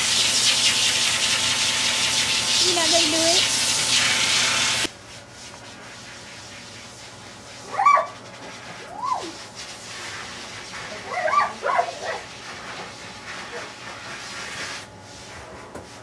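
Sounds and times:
dog whining: 0:07.7 - 0:08.2, 0:08.8 - 0:09.4, 0:11.1 - 0:12.2.

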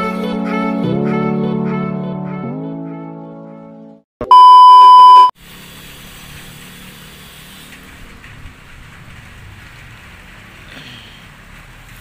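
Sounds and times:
test-tone beep: 0:04.2 - 0:05.3
outdoor background noise with hum: 0:05.4 - 0:12.0.

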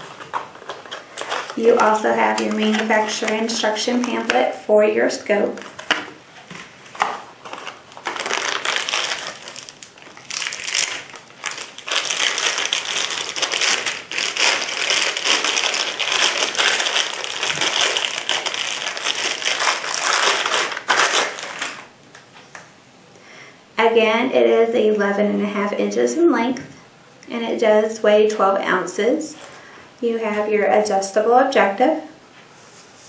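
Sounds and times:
plastic bag crinkling: 0:00.0 - 0:04.6, 0:07.0 - 0:21.9.

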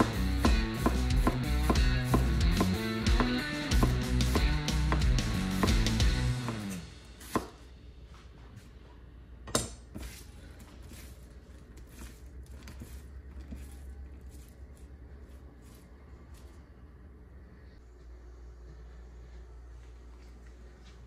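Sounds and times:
knife cutting onion on board: 0:00.0 - 0:07.6, 0:09.5 - 0:14.6.

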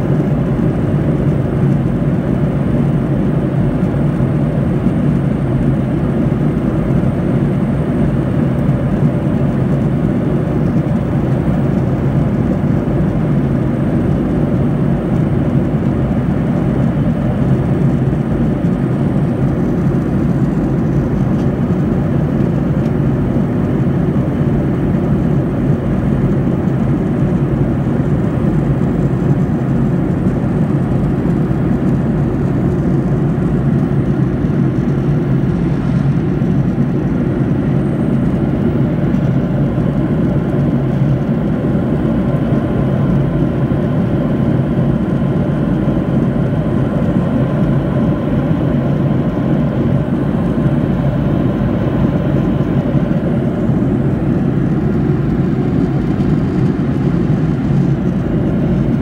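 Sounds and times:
airplane cabin drone: 0:00.0 - 0:59.0.

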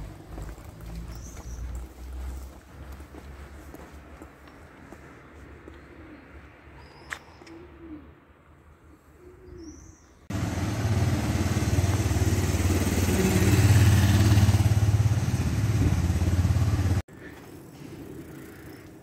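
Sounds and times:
bird cooing: 0:05.9 - 0:08.3, 0:08.9 - 0:10.0
vehicle engine running: 0:10.3 - 0:17.1.

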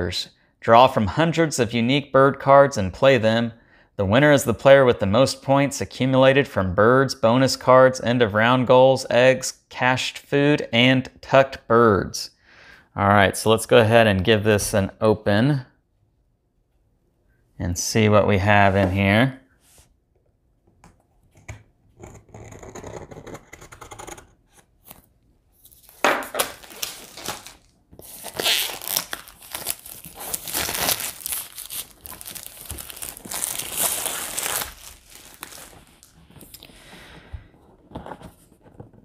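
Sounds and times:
plastic wrap tearing and crinkling: 0:25.6 - 0:36.6.

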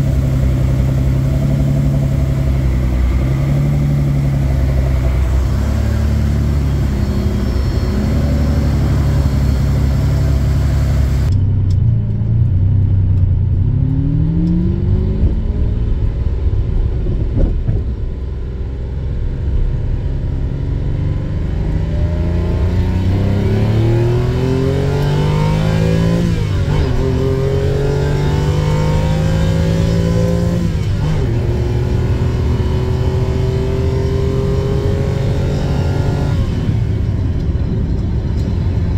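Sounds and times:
car engine idling: 0:00.0 - 0:13.6
car accelerating through gears: 0:13.6 - 0:17.7, 0:20.3 - 0:37.0.

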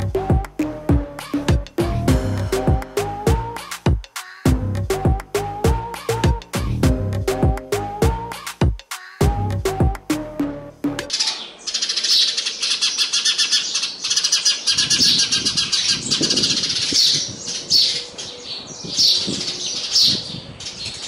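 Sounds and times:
sparrows chirping: 0:11.1 - 0:21.0.

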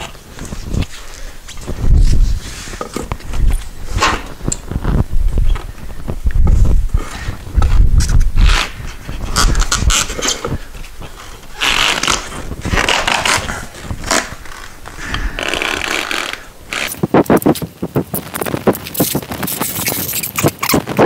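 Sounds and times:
rubber and tools scraping rim: 0:06.5 - 0:17.7.

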